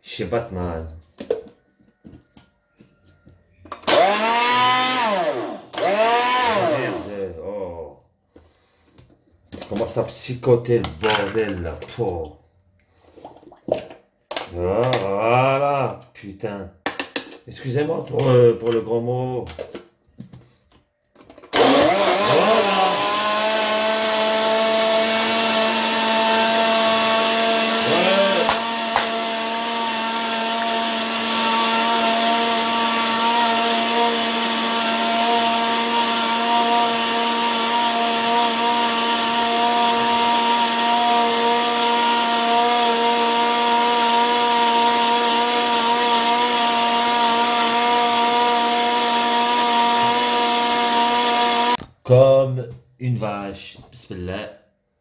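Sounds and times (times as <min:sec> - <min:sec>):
blender motor running: 0:03.8 - 0:07.3, 0:21.5 - 0:51.8
blender click: 0:27.8 - 0:29.8.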